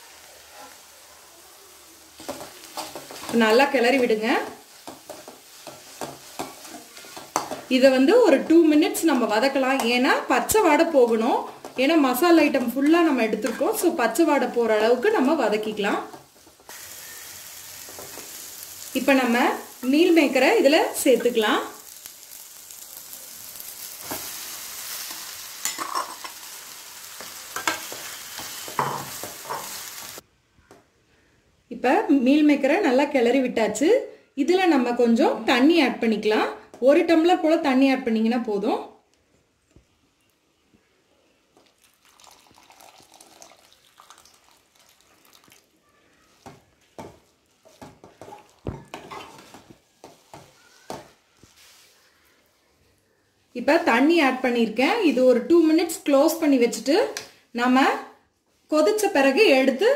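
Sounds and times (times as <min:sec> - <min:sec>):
food frying: 0:00.0 - 0:30.2, 0:41.5 - 0:52.2
masala sizzling in a pan: 0:00.0 - 0:30.2, 0:40.1 - 0:59.9
water pouring into pan: 0:41.7 - 0:45.7
metal spatula scraping a pan: 0:47.0 - 0:52.1
metal ladle scraping pan: 0:47.6 - 0:49.6.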